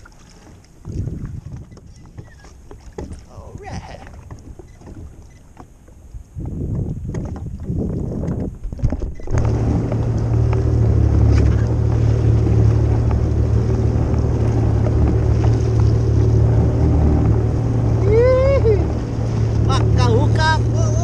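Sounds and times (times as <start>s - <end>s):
water splashing against hull: 0.0s - 21.0s
jet ski engine idling: 9.2s - 21.0s.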